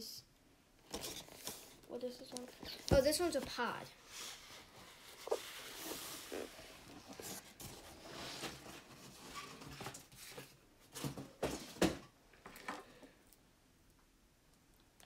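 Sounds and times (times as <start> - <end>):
cardboard box rustling and scraping: 4.2 - 10.5.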